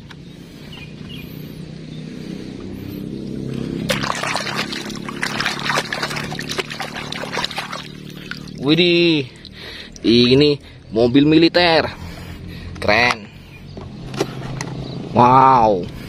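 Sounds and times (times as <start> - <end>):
water splashing and sloshing: 3.2 - 10.8
toy rubbed by hand under water: 3.8 - 8.6.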